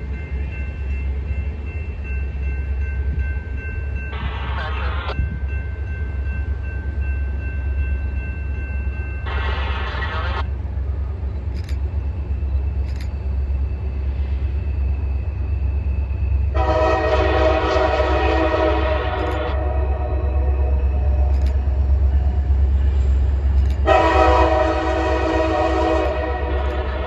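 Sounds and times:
distant locomotive air horn: 0:16.5 - 0:21.5, 0:23.8 - 0:27.0.

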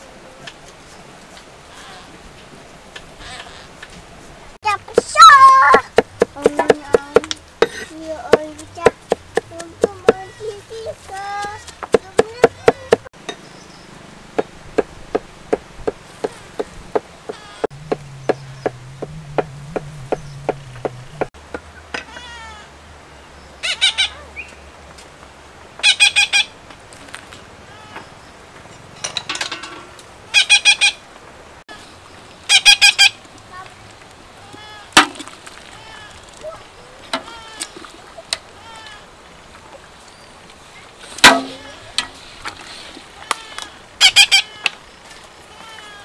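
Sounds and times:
caged birds squawking: 0:03.2 - 0:03.8, 0:16.0 - 0:24.6, 0:25.8 - 0:26.6, 0:30.3 - 0:31.1, 0:31.7 - 0:33.2, 0:42.7 - 0:46.0
cleaver chopping on wooden board: 0:05.0 - 0:10.3, 0:11.4 - 0:13.1, 0:41.2 - 0:41.6.

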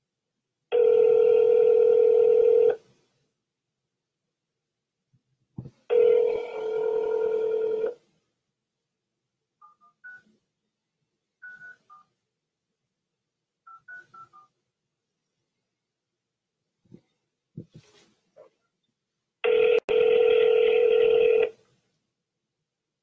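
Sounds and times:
steady telephone tone: 0:00.7 - 0:02.8, 0:05.9 - 0:08.0, 0:19.5 - 0:21.5.

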